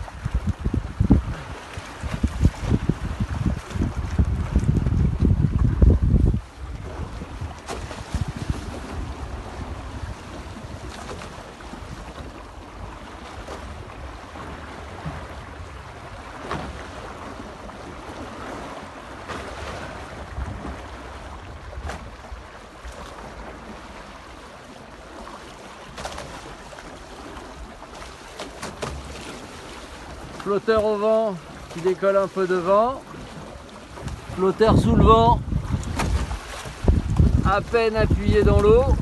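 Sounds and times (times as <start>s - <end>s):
wind buffeting microphone: 0.0s - 24.1s, 33.1s - 39.0s
water rushing along hulls: 0.0s - 39.0s.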